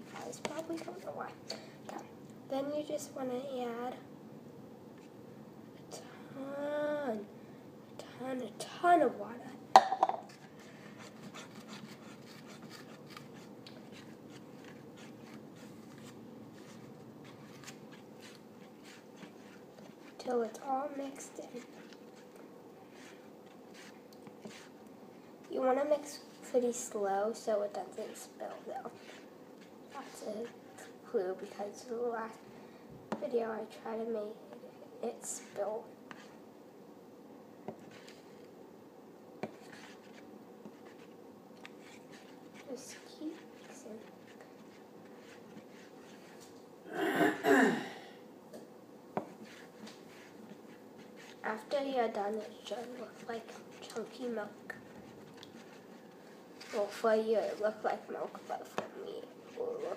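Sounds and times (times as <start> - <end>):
fork scraping paper plate: 10.3 - 24.8, 28.0 - 31.6, 39.4 - 46.5, 49.3 - 59.9.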